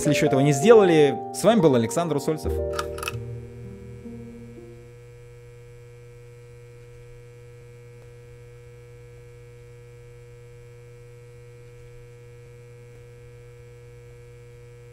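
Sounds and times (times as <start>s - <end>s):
faint constant tones: 2.6s - 9.5s
steady low hum: 2.6s - 14.9s.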